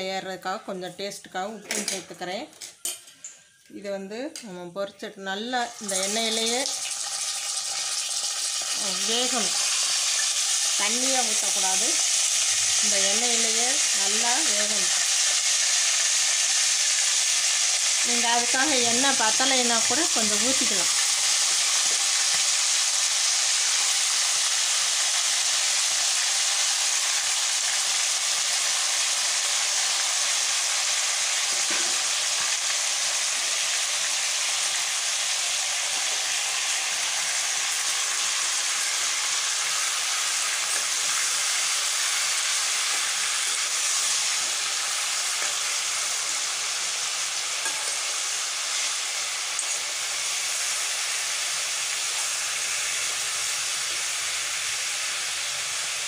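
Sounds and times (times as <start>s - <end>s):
chicken sizzling in hot oil: 5.6s - 56.0s.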